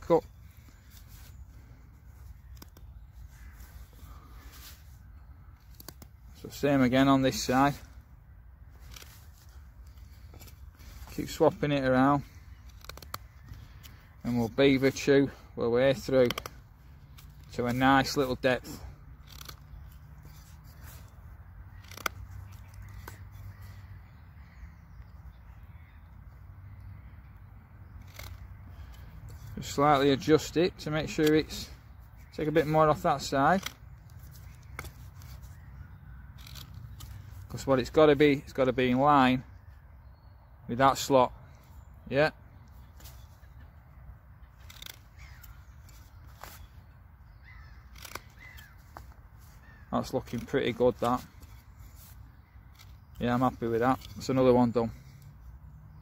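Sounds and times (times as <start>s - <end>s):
faint bird calls: 0.0s - 6.5s, 7.4s - 17.5s, 18.6s - 37.8s, 41.3s - 56.0s
knife scraping wood: 12.4s - 15.1s, 15.9s - 23.7s, 44.4s - 46.8s, 47.5s - 53.2s.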